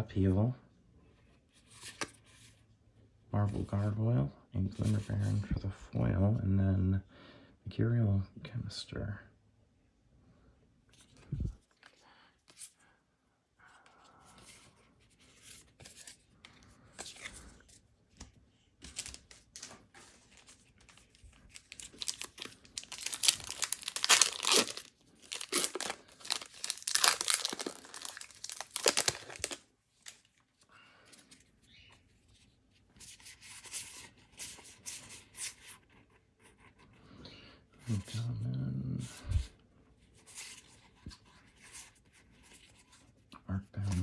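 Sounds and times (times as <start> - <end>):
foil wrapper rustling: 21.3 - 29.6
foil wrapper ripping: 21.6 - 29.6.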